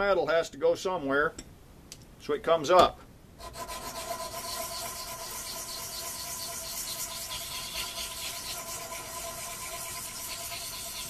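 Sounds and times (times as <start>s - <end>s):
sanding block rasping on metal: 3.4s - 11.0s.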